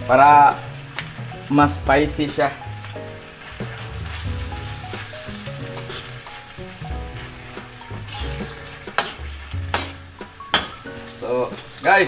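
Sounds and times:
filling sizzling in a wok: 0.0 - 12.0
spatula knocking against wok: 8.4 - 10.8.

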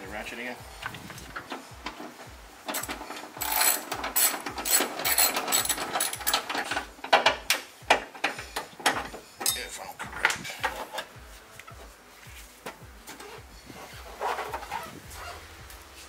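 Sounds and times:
ratchet wrench clicking: 2.7 - 9.7.

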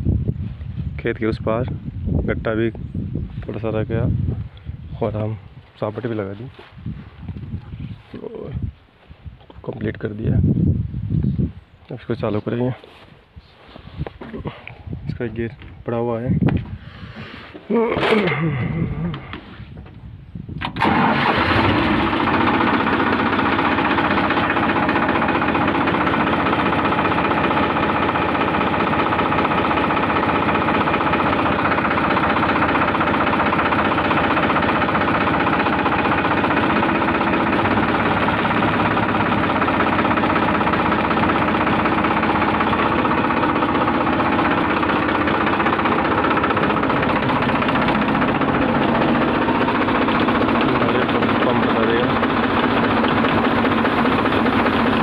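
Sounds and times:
diesel tractor engine running: 16.6 - 55.0.

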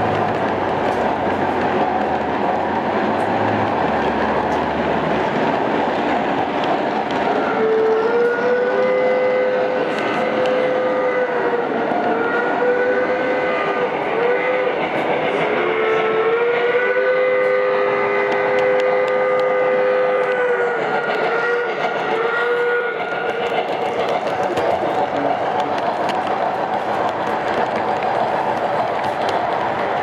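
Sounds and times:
rumble of model trains on track: 0.0 - 30.0.

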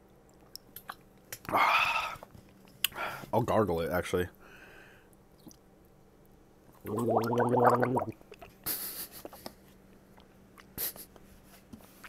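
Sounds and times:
man gargling water: 6.8 - 8.2.

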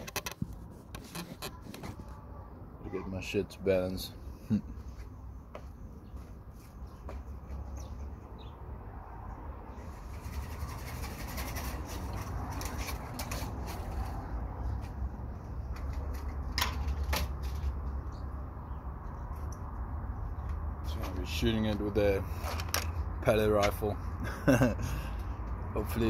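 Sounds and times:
rustling and handling noises: 9.9 - 17.9.

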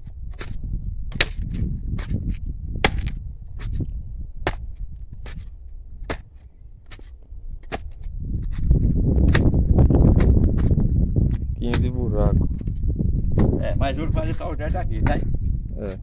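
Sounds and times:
post-hole digger striking clay: 0.0 - 12.0, 13.2 - 13.6.

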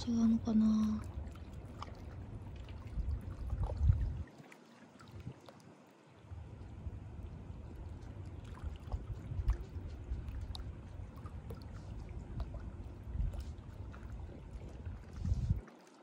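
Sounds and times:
river water lapping on rocks: 0.0 - 16.0
small splashes: 0.0 - 16.0
wind on microphone: 1.0 - 4.3, 5.0 - 5.4, 6.7 - 15.7.

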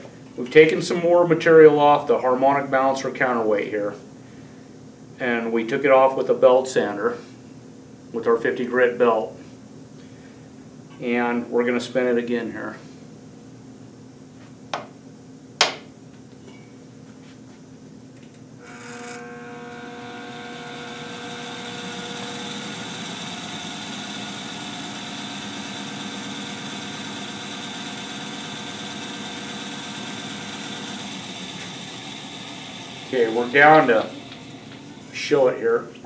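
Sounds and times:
balancing machine whirring: 18.6 - 35.3.

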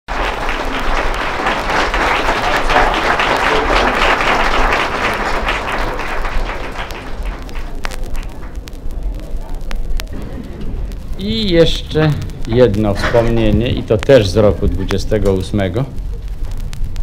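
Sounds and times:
audience applauding: 0.1 - 8.6.

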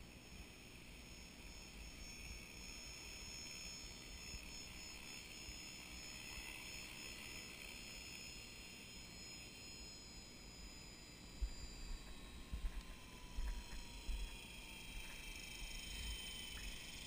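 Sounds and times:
high-pitched motor whine: 0.0 - 17.0.

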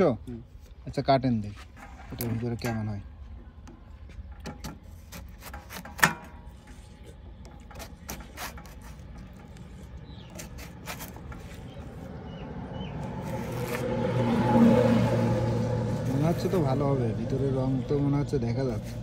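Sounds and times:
passing vehicle engine: 11.8 - 19.0.

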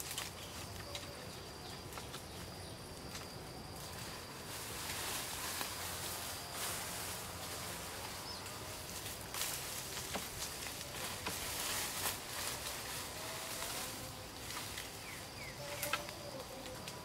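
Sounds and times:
stalks clicking against bamboo: 0.0 - 2.4, 8.9 - 17.0
grass stalks rustling: 0.0 - 17.0
faint chirps: 13.6 - 16.9.

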